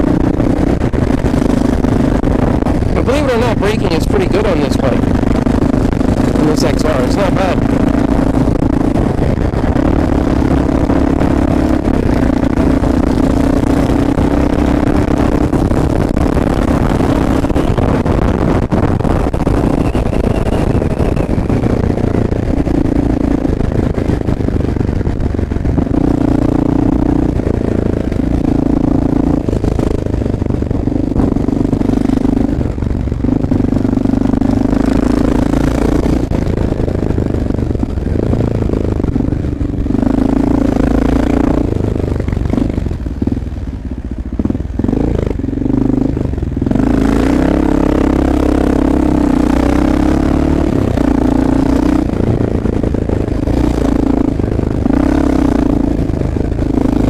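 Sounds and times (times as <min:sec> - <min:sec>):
low rumble: 0:00.0 - 0:57.0
motorcycle engine running: 0:00.0 - 0:57.0.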